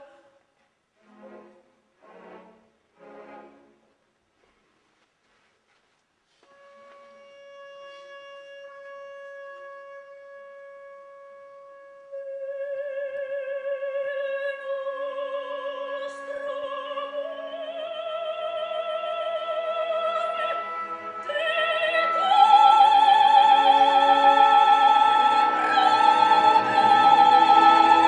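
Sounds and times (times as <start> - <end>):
soft orchestral accompaniment: 1.0 - 4.0, 6.4 - 28.0
soprano singing with vibrato: 12.1 - 28.0.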